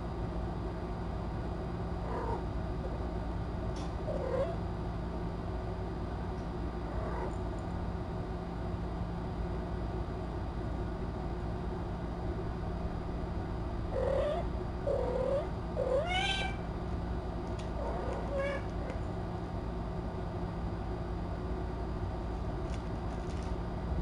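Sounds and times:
low room hum: 0:00.0 - 0:24.0
cat meowing: 0:14.0 - 0:16.7, 0:17.9 - 0:18.7.

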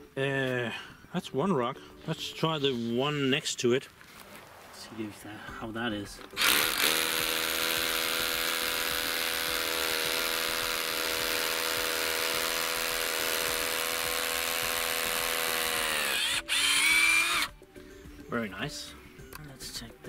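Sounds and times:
hammer drill boring into rock: 0:06.4 - 0:17.5.

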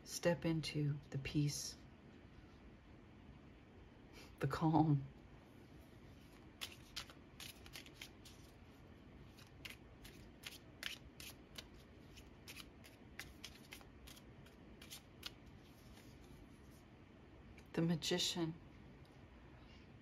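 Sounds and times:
cards being shuffled: 0:06.2 - 0:08.6, 0:09.3 - 0:16.8.

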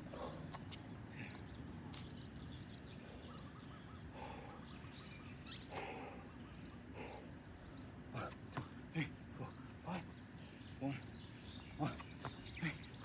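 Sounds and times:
person breathing hard: 0:00.0 - 0:00.5, 0:04.1 - 0:04.8, 0:05.7 - 0:07.4
small birds chirping: 0:00.0 - 0:13.0.

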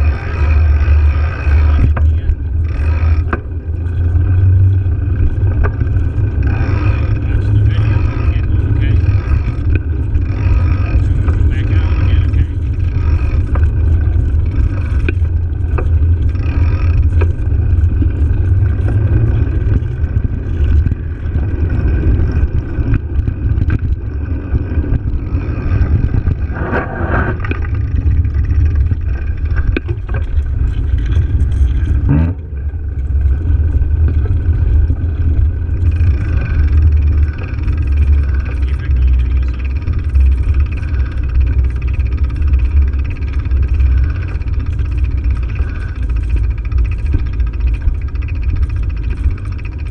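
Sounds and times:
tyre noise over cracked asphalt: 0:00.6 - 0:49.9
wind buffeting microphone: 0:01.7 - 0:38.1.

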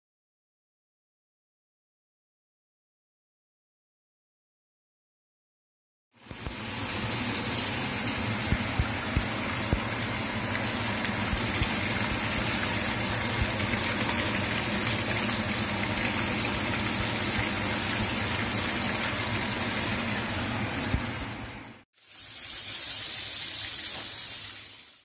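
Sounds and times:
deep-frying sizzle in oil: 0:06.1 - 0:25.0.

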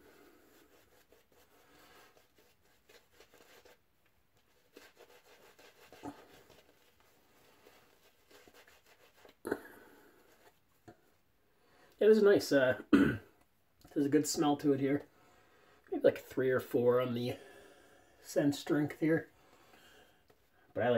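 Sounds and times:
shaving brush rubbing on face: 0:00.0 - 0:10.6.

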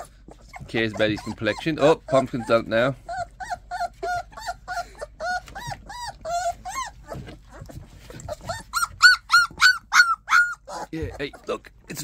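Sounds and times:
puppies whining and squeaking: 0:00.0 - 0:12.0.

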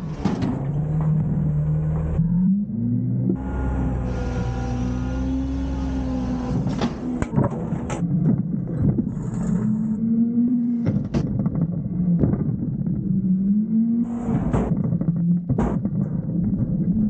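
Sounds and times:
garbage truck diesel engine revving: 0:00.0 - 0:07.3.

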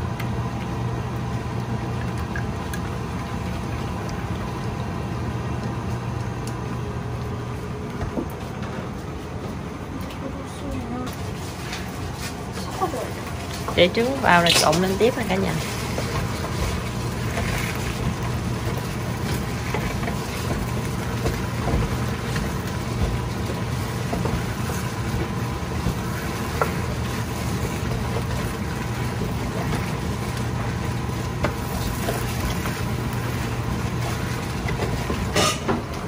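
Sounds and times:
steady low hum: 0:00.0 - 0:36.0
rice sizzling in a pan: 0:11.2 - 0:36.0
spatula scraping a pan: 0:35.0 - 0:35.7.

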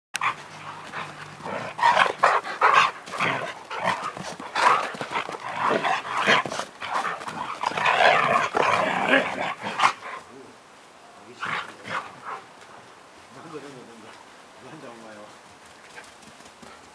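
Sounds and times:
dogs yipping and grumbling: 0:00.2 - 0:10.3.

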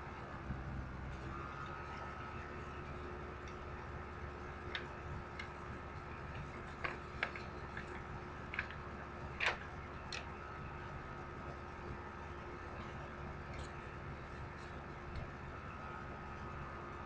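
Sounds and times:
low hum: 0:00.0 - 0:17.0
small clicks: 0:06.2 - 0:08.8, 0:09.4 - 0:10.3.

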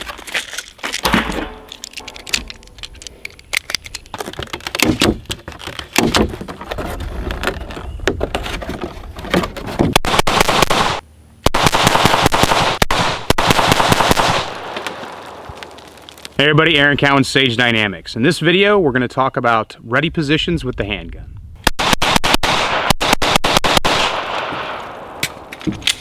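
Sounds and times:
pistol shots: 0:10.0 - 0:15.5, 0:21.6 - 0:25.4.

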